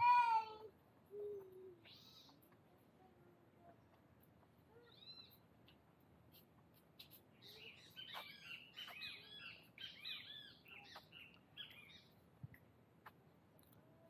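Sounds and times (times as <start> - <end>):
isolated ticks: 0.7 - 9.0, 12.4 - 13.9
high chirping calls: 1.1 - 2.5, 4.7 - 12.2.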